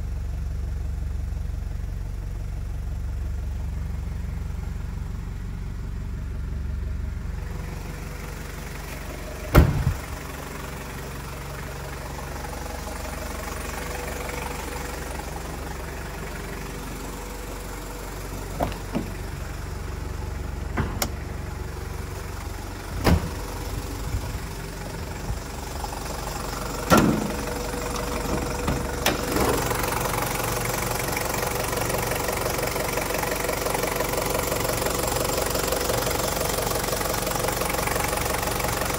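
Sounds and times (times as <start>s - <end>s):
diesel engine idling: 0.0s - 38.9s
sharp thumps: 9.5s - 10.0s.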